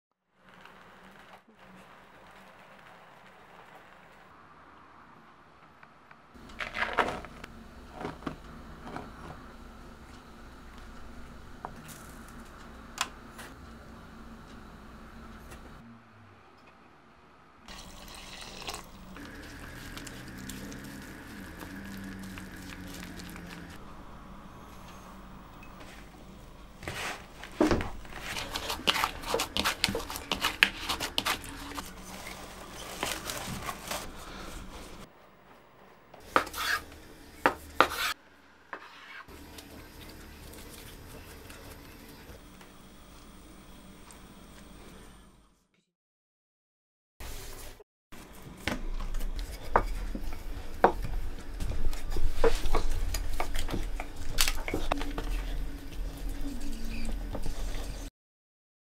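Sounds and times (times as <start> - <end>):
cling film crinkling: 18.6 - 23.8, 28.0 - 34.6
spoon scraping cutting board: 28.1 - 33.1, 36.2 - 36.9, 37.5 - 39.3
hands kneading dough in bowl: 28.1 - 34.1.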